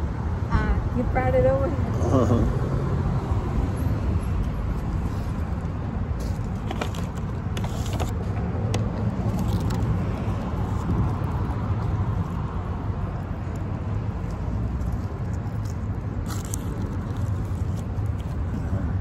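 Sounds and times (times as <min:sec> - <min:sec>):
road traffic rumble: 0:00.0 - 0:19.0
paper wrapper crackling: 0:06.3 - 0:08.2.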